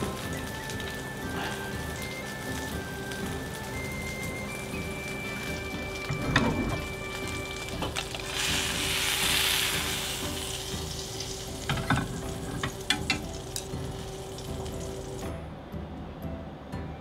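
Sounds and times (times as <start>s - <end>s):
steak sizzling: 0.0s - 15.3s.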